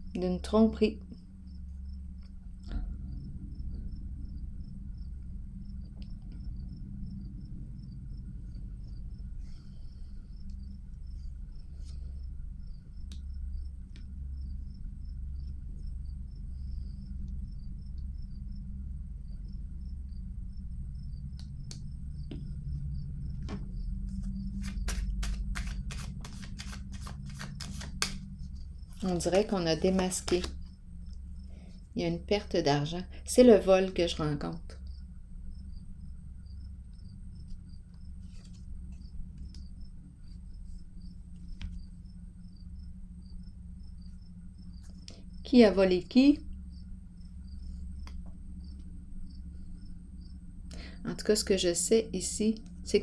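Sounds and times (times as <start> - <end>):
cricket chirping: 0.0 - 53.0
low room hum: 0.0 - 53.0.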